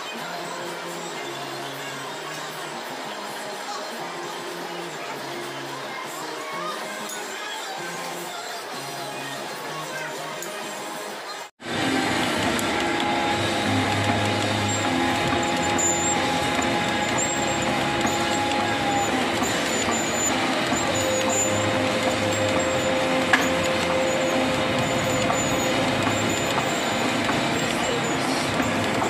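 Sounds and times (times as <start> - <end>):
workshop machinery noise: 0.0 - 29.0
milling machine whine: 11.6 - 29.0.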